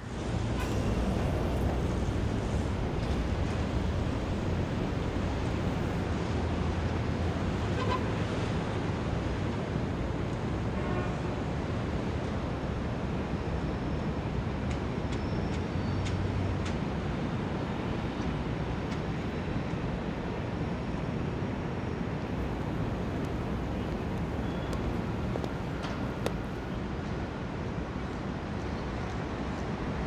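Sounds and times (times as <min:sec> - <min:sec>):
passing vehicles rumble: 0:00.6 - 0:06.1, 0:22.3 - 0:26.8.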